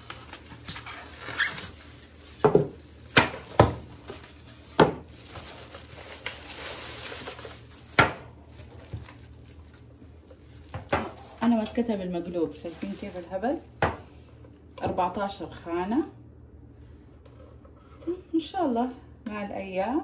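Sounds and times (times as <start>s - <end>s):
plastic wrapping rustling: 0.0s - 14.8s.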